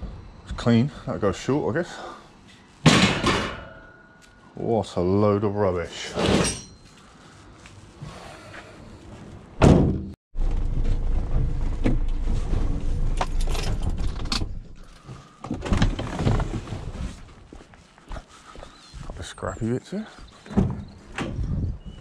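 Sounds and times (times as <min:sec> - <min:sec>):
heavy thunk on van: 0:09.6 - 0:10.1.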